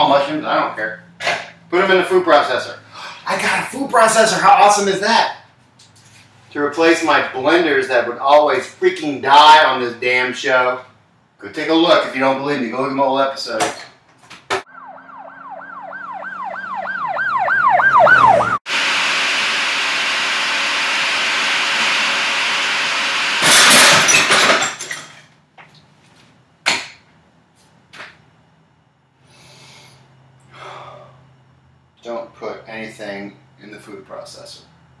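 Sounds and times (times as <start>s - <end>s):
warbling siren-like tone: 14.7s - 18.6s
food processor whirring: 18.2s - 23.4s.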